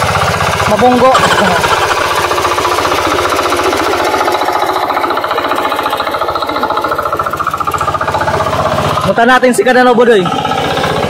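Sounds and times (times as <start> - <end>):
hand tractor engine running: 0.0 - 11.0.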